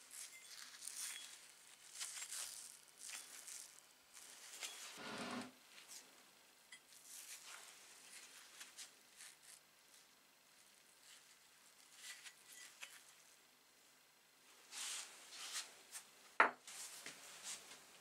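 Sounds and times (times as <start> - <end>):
scratching and rustling of gloved hands: 0.0 - 6.2, 6.9 - 13.5, 14.5 - 18.0
rubbing sound: 4.2 - 5.5.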